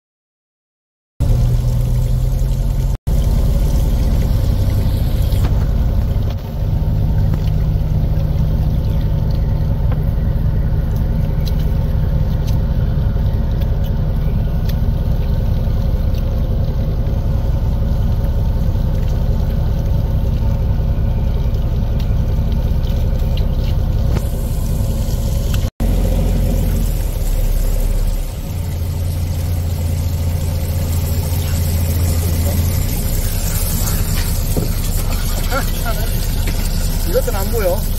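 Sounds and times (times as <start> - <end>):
boat engine rumbling: 1.2 - 37.9
water running into plastic tub: 1.2 - 37.9.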